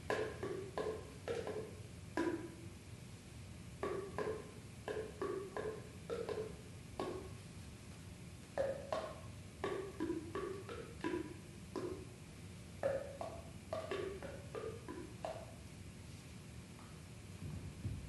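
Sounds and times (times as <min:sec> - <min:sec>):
hollow clarinet pops: 0:00.1 - 0:02.6, 0:08.6 - 0:12.0.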